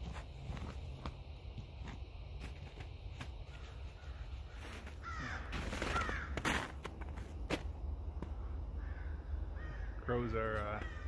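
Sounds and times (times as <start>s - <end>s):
crows cawing: 3.5s - 6.7s, 8.2s - 11.0s.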